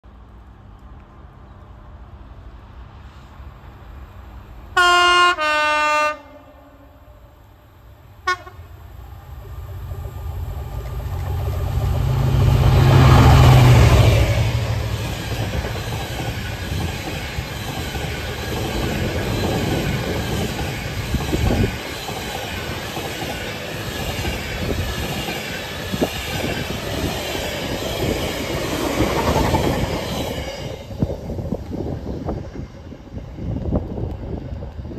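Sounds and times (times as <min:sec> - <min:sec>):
diesel locomotive engine: 0:00.2 - 0:34.9
locomotive horn blasts: 0:04.8 - 0:07.4, 0:08.2 - 0:08.7.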